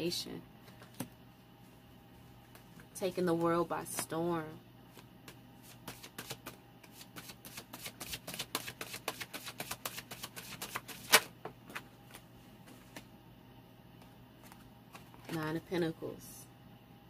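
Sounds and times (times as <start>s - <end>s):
cards being shuffled: 4.9s - 13.1s, 14.4s - 15.4s.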